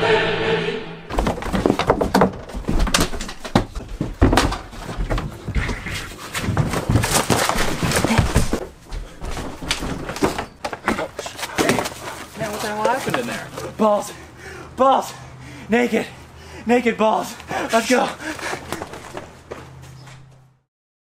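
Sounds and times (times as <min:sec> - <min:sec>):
chant-like sung music: 0:00.0 - 0:01.1
knocks and thumps of person moving: 0:01.1 - 0:13.8, 0:18.4 - 0:20.5.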